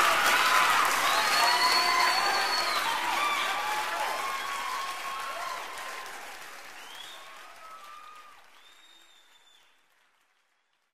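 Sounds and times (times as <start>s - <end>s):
crowd applause: 0.0s - 10.9s.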